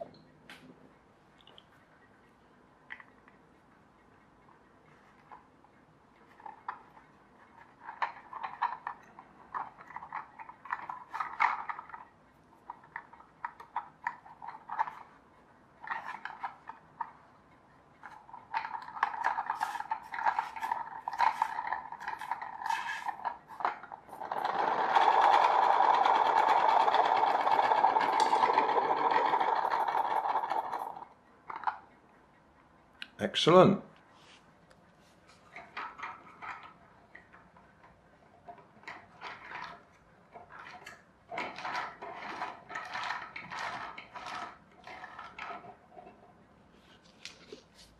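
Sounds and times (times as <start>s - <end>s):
small plastic clicks and rustles: 6.2s - 15.2s, 15.8s - 17.3s, 17.9s - 31.9s, 35.3s - 46.3s.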